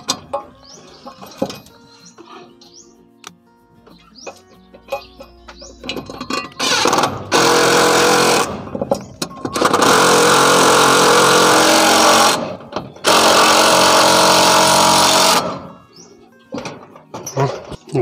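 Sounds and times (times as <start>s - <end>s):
impact driver hammering screws: 6.6s - 8.6s, 9.6s - 15.6s.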